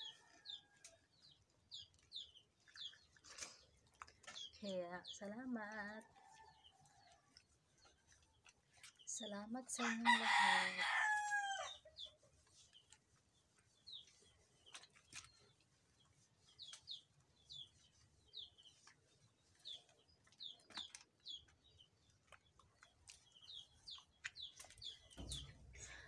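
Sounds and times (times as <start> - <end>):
small birds chirping: 0.0 - 26.0
rooster crowing: 9.8 - 11.7.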